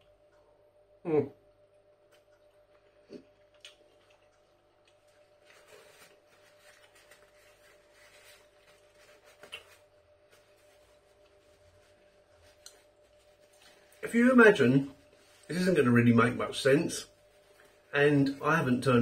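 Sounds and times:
low steady hum: 0.0s - 19.0s
paper napkin rustling: 5.1s - 19.0s.

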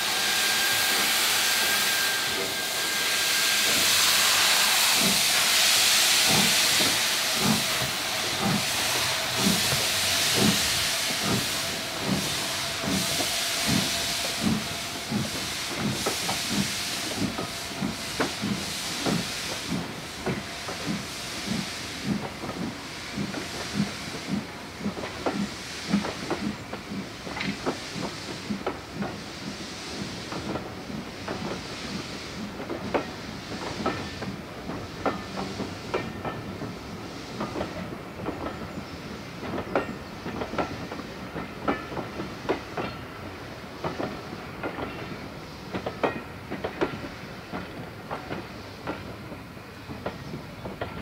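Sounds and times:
steam hissing: 0.0s - 51.0s.

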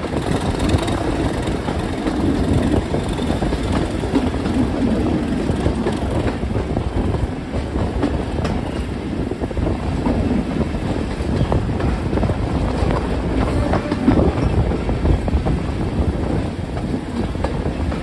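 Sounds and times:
wheels clacking over rail joints: 0.0s - 9.0s.

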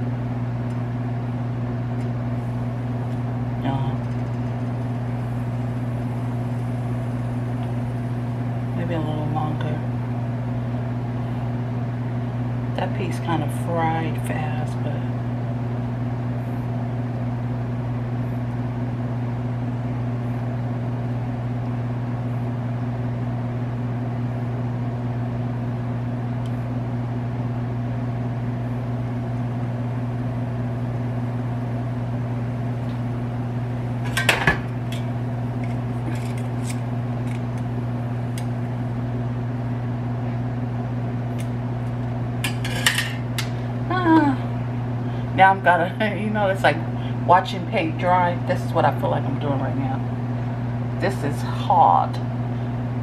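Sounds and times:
steady low hum: 0.0s - 53.0s
pots and utensils clinking: 42.4s - 43.2s.

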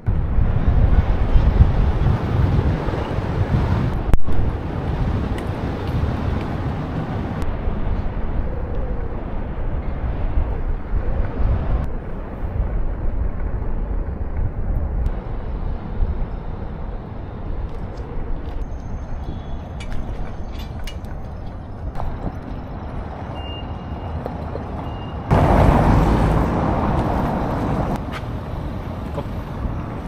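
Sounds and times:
wind buffeting microphone: 0.0s - 23.4s
moving vehicle rumble: 0.0s - 30.0s.

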